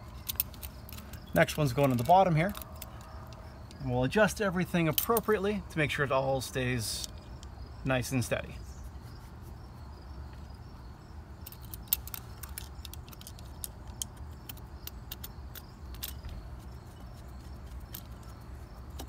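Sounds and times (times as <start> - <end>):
metallic clicks of screw driving: 11.4 - 19.0.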